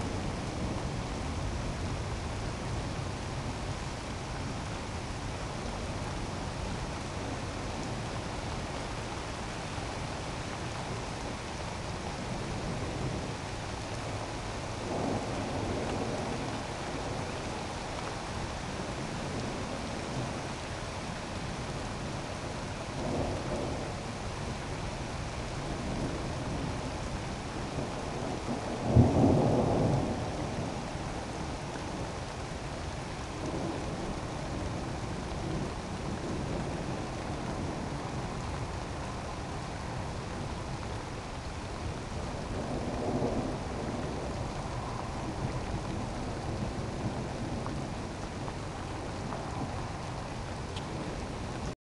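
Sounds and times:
steady rain hissing: 0:00.0 - 0:51.8
thunder rumbling: 0:12.1 - 0:20.4, 0:21.2 - 0:51.8
loud thunderclap: 0:28.1 - 0:30.7.

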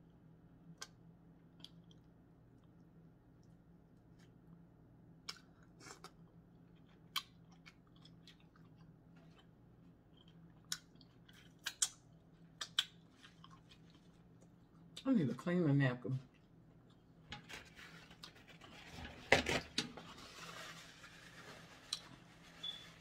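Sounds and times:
faint low hum: 0:00.0 - 0:23.0
chewing: 0:05.2 - 0:15.0.

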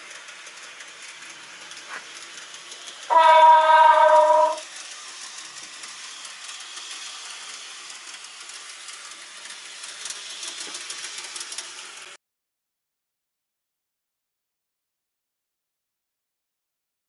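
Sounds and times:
model train whirring rattle: 0:00.0 - 0:12.2.

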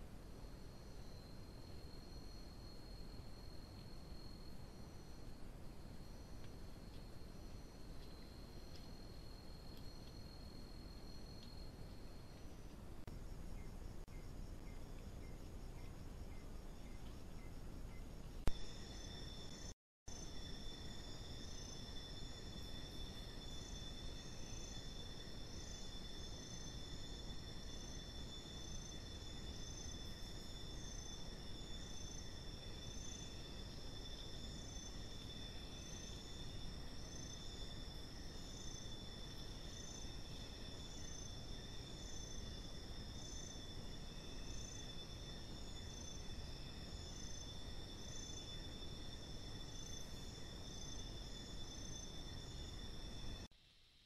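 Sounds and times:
insects trilling: 0:00.0 - 0:53.5
pulsing insect call: 0:00.0 - 0:53.5
low background hiss: 0:00.0 - 0:54.0.

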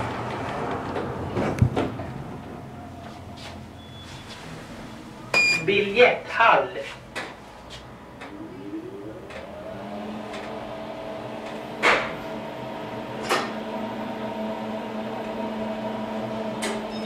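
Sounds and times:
elevator drive whine: 0:08.0 - 0:17.0.

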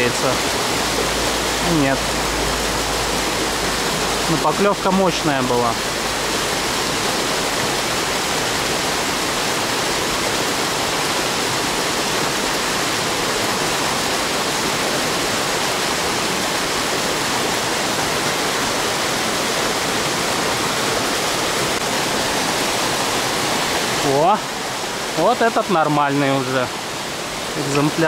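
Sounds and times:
river water rushing: 0:00.0 - 0:28.0.

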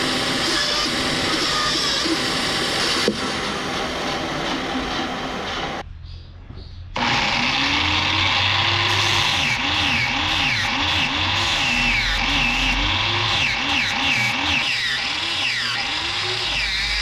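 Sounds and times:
angle grinder grinding steel blade: 0:07.0 - 0:17.0.

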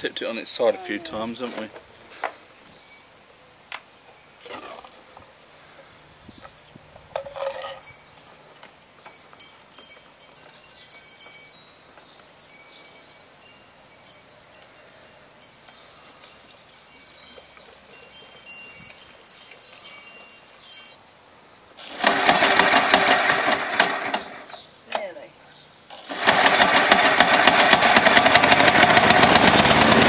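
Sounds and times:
lawnmower engine cranking: 0:07.1 - 0:08.0, 0:21.8 - 0:25.1, 0:25.9 - 0:30.0
recoil starter pull: 0:21.8 - 0:24.6, 0:25.9 - 0:30.0.

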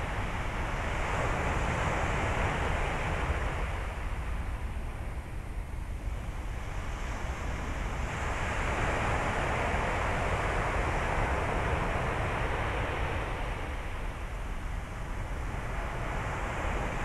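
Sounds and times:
wind rumble on microphone: 0:00.0 - 0:17.0.

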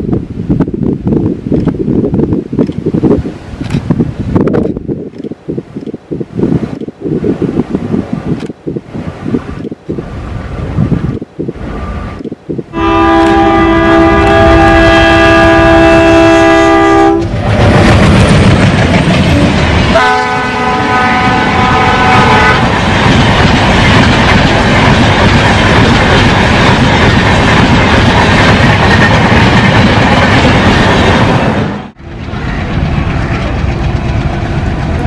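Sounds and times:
train rumbling on rails: 0:00.0 - 0:35.0
locomotive air horn blasts: 0:12.7 - 0:17.3, 0:19.9 - 0:22.7.

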